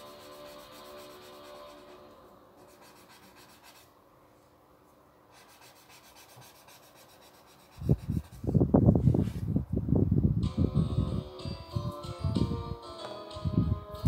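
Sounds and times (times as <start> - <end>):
pencil scratching on paper: 0.0 - 3.9, 5.3 - 8.5.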